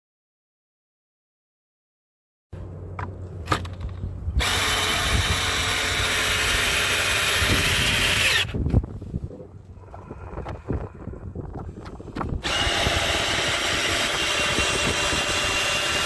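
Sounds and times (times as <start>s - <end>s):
cordless drill driving screw: 4.4s - 8.6s, 12.4s - 16.0s.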